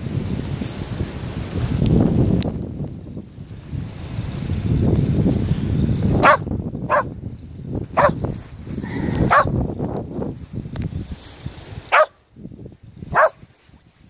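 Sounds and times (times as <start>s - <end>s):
wind rumbling on microphone: 0.0s - 14.0s
dog barking: 6.2s - 7.1s, 8.0s - 8.2s, 9.2s - 9.6s, 11.9s - 12.2s, 13.1s - 13.4s.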